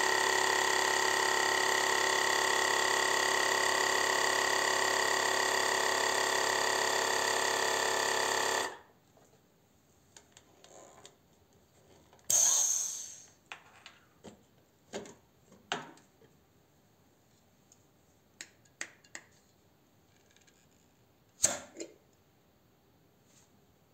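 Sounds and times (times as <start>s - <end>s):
air hissing into canister: 12.3s - 13.4s.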